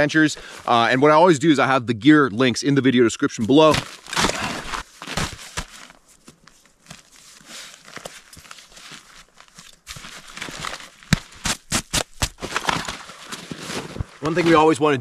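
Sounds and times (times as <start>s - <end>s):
nylon backpack rustling: 3.8s - 15.0s.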